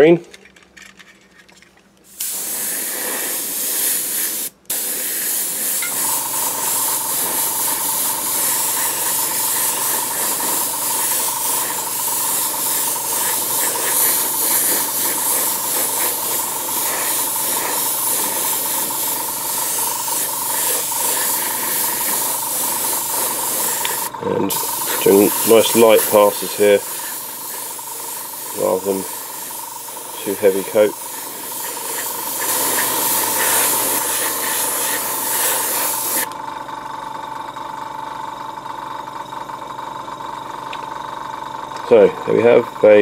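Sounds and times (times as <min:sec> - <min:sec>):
airbrush spraying hiss: 0:02.1 - 0:36.3
steady whine: 0:05.4 - 0:39.7.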